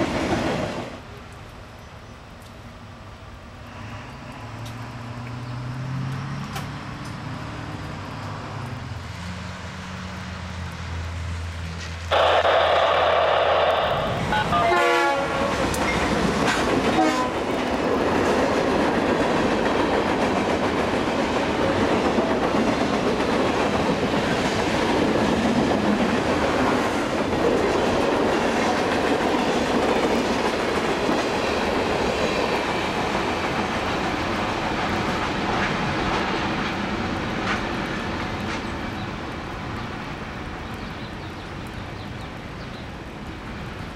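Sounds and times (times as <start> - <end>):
train horn: 12.1 - 15.6, 16.9 - 17.5
wheels clattering on rails: 15.4 - 39.9.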